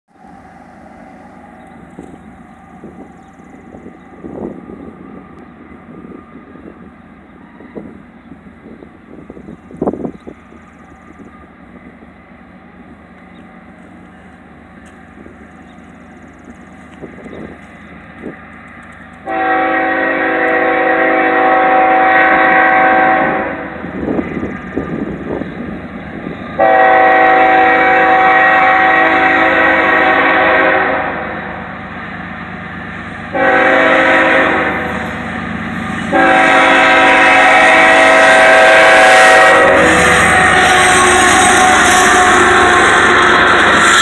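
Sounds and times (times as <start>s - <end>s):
locomotive engine: 0.1s - 44.0s
train rumble: 0.1s - 44.0s
train air horn blasts: 19.2s - 24.0s, 26.5s - 31.6s, 33.3s - 35.2s, 35.8s - 44.0s.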